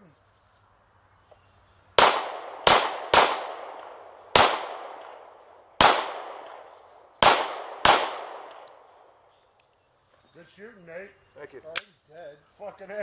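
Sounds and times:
handgun shots: 2.0s - 8.8s.

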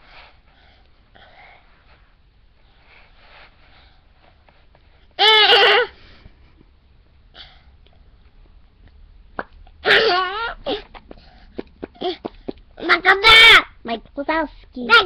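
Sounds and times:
faint breathing: 0.0s - 5.0s, 11.1s - 12.7s.

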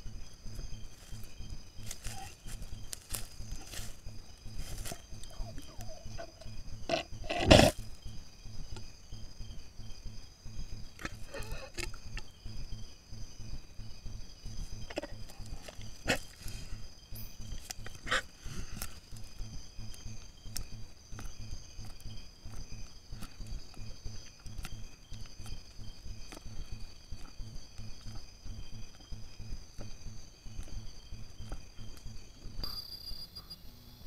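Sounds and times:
night insects chirring: 0.0s - 34.0s
anteater snuffling and sniffing: 0.5s - 8.1s, 11.0s - 12.3s, 14.5s - 32.3s.

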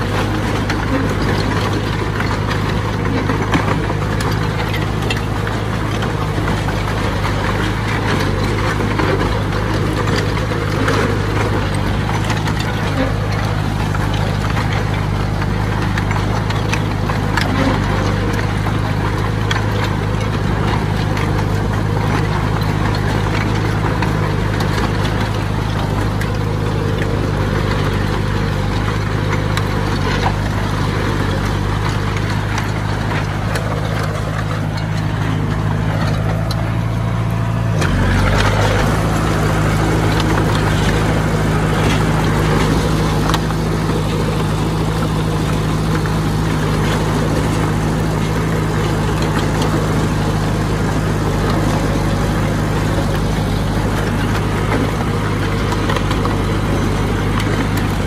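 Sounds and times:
heavy diesel engine running: 0.0s - 58.0s.

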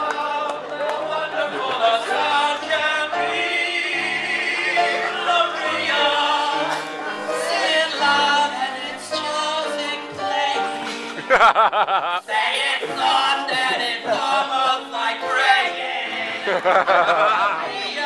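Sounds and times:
vocal quartet singing in harmony: 0.0s - 18.0s.

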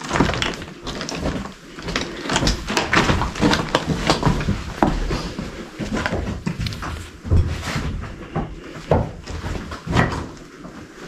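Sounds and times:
stones clattering: 0.0s - 5.0s
footsteps on slate rubble: 0.0s - 11.0s.

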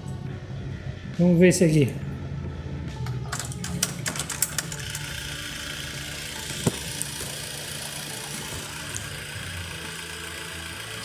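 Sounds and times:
cassette rewinding whir: 4.3s - 11.0s.

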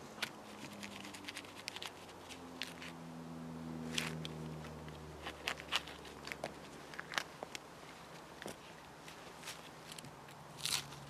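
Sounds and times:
knife scraping bark: 0.0s - 3.0s.

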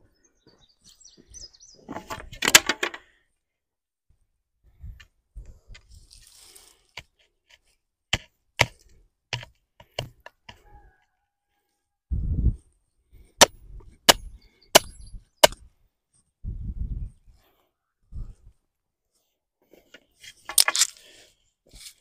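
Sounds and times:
wooden stakes knocking: 1.9s - 3.0s, 7.0s - 10.6s, 13.4s - 15.7s, 20.4s - 20.9s.

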